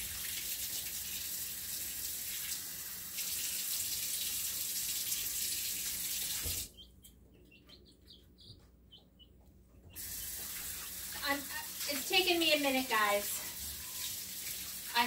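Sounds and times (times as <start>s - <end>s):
faucet running water: 0.0s - 6.7s, 10.0s - 15.0s.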